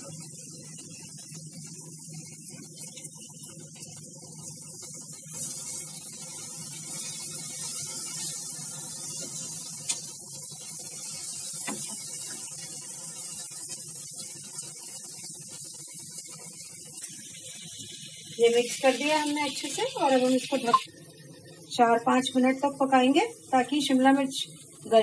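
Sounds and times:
vegetables sizzling in oil: 0:00.0 - 0:25.0
spatula stirring and scraping: 0:04.8 - 0:13.8.

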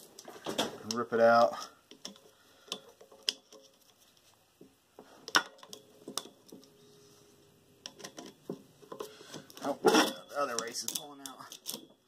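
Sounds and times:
pliers clicking and scraping on metal: 0:00.9 - 0:04.2, 0:07.8 - 0:12.0.

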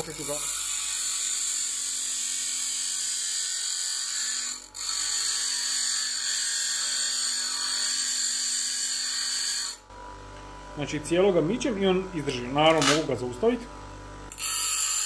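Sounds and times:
nail on bench grinder wheel: 0:12.6 - 0:13.2, 0:14.3 - 0:15.0.

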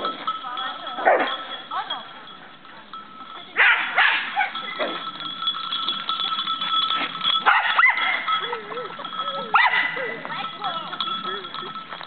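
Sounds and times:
dog barking: 0:03.6 - 0:04.6, 0:07.5 - 0:08.2, 0:09.6 - 0:10.1.

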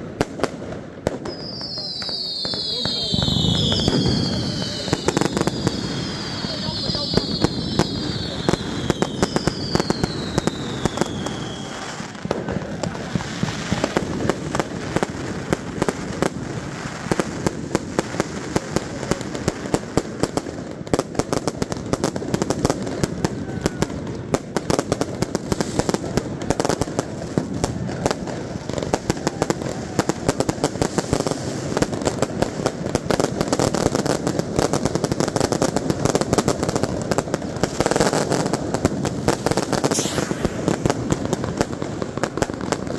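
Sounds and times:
fireworks bangs and crackling: 0:00.0 - 0:42.9
falling firework whistle: 0:01.0 - 0:14.4, 0:22.5 - 0:32.0, 0:37.7 - 0:42.9.

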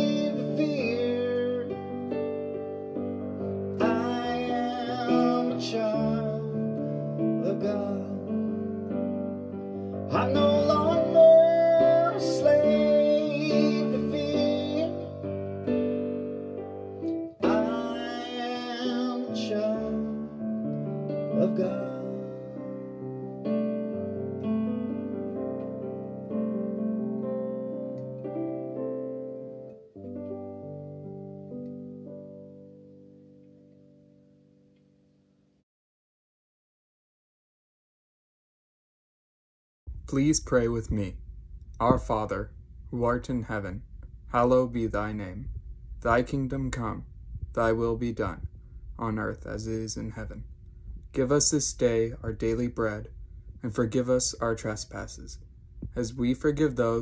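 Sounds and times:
digital keyboard chords and melody: 0:00.0 - 0:35.4.

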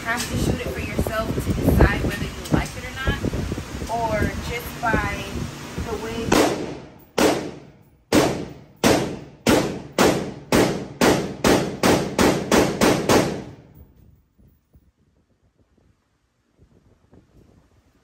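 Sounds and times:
rapid gunshots with echo: 0:06.3 - 0:13.6.

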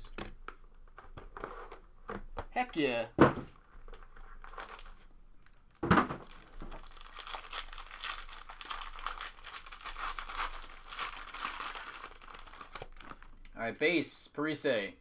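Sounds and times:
foil wrapper crinkling and tearing: 0:03.8 - 0:05.6, 0:06.2 - 0:13.4.

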